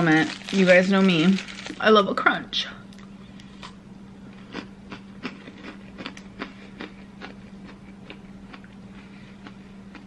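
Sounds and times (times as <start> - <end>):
steady low hum: 0.0 - 10.0
crisp crunches of chewing: 0.2 - 1.8, 4.4 - 8.8.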